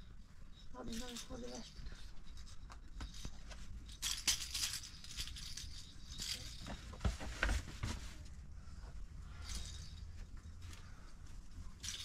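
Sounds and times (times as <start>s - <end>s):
rustling and rattling of objects: 0.0s - 12.0s.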